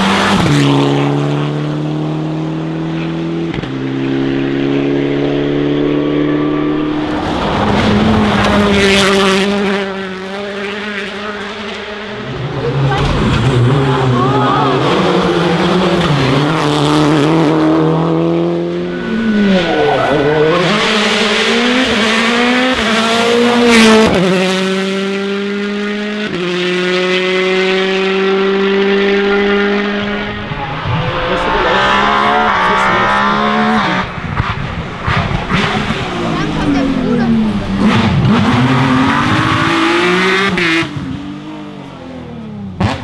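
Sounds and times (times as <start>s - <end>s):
rally car engines revving: 0.0s - 43.0s.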